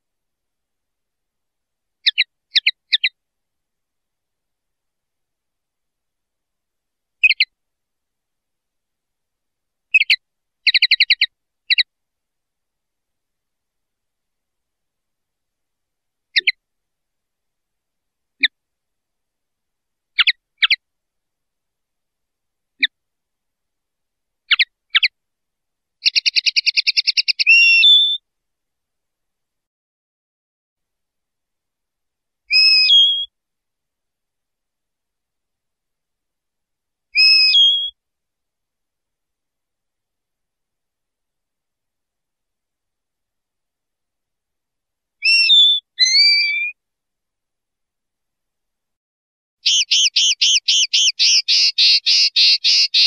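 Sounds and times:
linnet twittering song: 2.0s - 3.2s, 7.2s - 7.5s, 9.9s - 11.9s, 20.2s - 20.8s, 24.5s - 25.1s, 26.0s - 28.2s, 32.5s - 33.3s, 37.2s - 38.0s, 45.2s - 46.8s, 49.6s - 53.0s.

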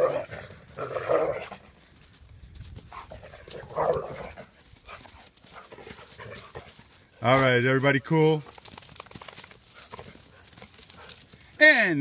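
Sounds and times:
dogs rough vocal sounds: 0.0s - 1.7s, 2.8s - 7.5s, 9.3s - 11.4s.

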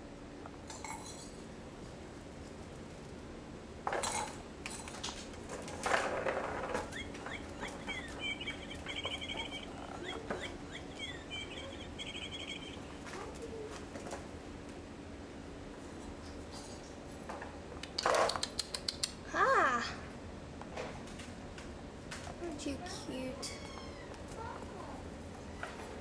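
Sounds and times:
bird chirping and trilling: 6.7s - 13.4s.

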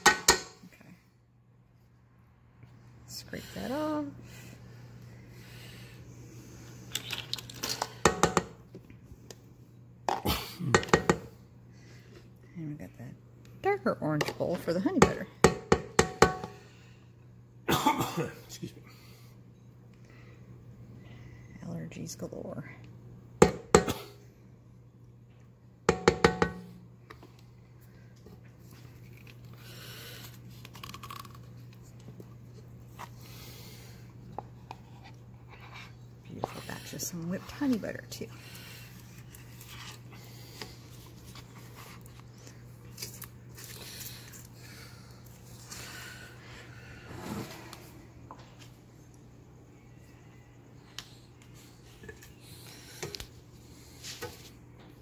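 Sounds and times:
utensils knocking steel bowl: 0.0s - 0.6s, 15.0s - 16.6s, 25.9s - 26.7s
steady low hum: 0.0s - 55.0s.

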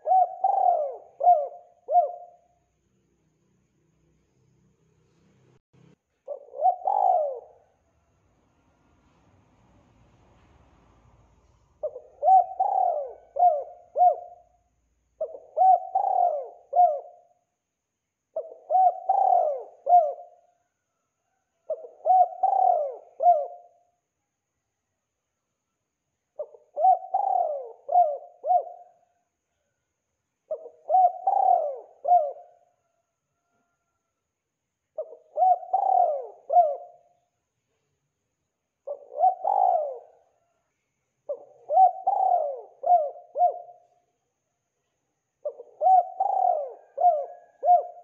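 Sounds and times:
dove cooing: 0.0s - 2.6s, 6.2s - 7.8s, 11.8s - 17.4s, 18.3s - 20.5s, 21.3s - 23.9s, 26.4s - 29.2s, 30.5s - 34.0s, 35.0s - 37.3s, 38.8s - 40.6s, 41.3s - 44.0s, 45.4s - 48.0s.

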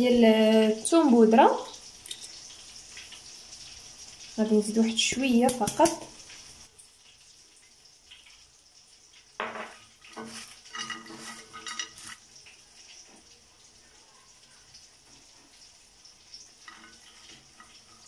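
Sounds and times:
fries scraping on glass plate: 1.4s - 8.5s, 9.4s - 13.4s, 15.0s - 18.0s.

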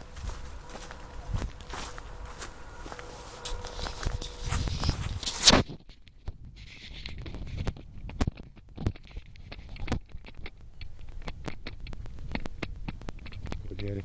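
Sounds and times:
footsteps on dry dirt: 0.0s - 5.6s
loud brushing rustle: 0.0s - 5.8s.

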